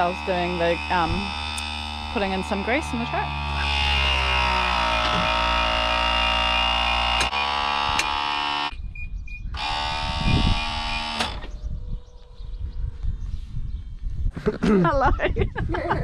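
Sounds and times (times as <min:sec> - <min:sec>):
electric pump whining: 0:00.0 - 0:08.8, 0:09.5 - 0:11.6.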